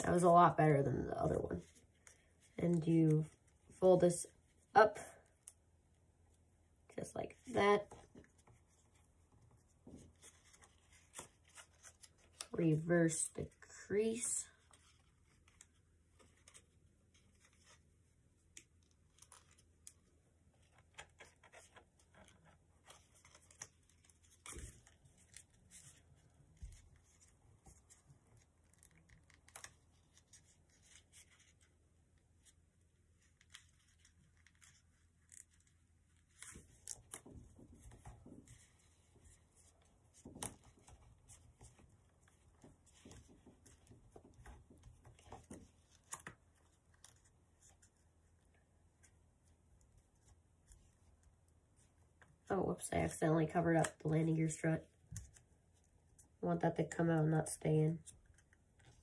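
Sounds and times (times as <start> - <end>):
paper rustling and crinkling: 7.8 - 12.6, 14.5 - 52.5.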